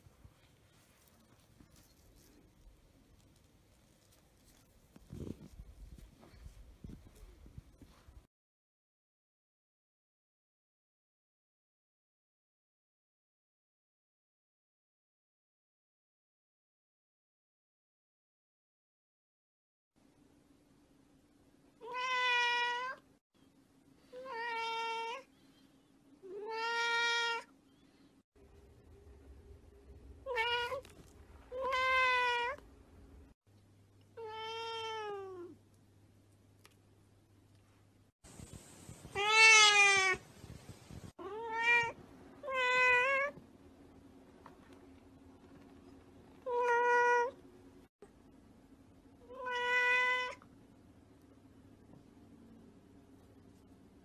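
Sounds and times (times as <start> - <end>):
cat meowing: 21.8 - 23.0, 26.3 - 27.5, 30.2 - 30.9, 31.5 - 32.6, 34.2 - 35.6, 39.2 - 40.2, 41.2 - 43.4, 46.5 - 47.4, 49.3 - 50.4.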